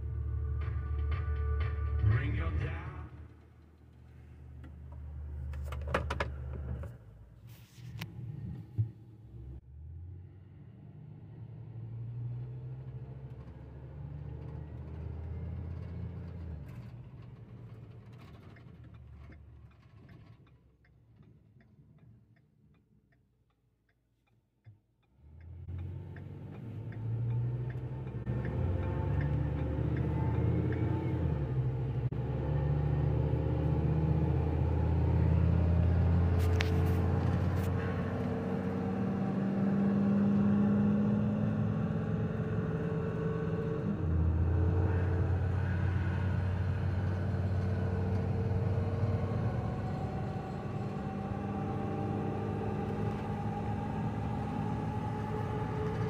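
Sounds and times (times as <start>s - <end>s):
truck engine drone: 0.0s - 22.4s, 25.0s - 56.0s
turn signal ticking: 18.2s - 32.0s.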